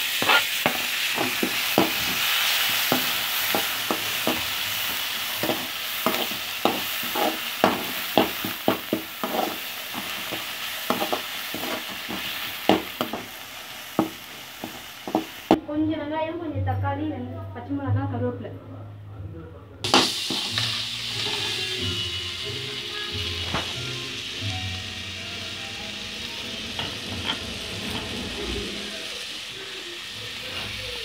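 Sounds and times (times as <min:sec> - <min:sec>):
metal ladle scraping pan: 0:00.0 - 0:13.4, 0:19.9 - 0:21.8, 0:26.0 - 0:29.0
vegetables sizzling in hot oil: 0:00.0 - 0:15.6, 0:19.9 - 0:31.0.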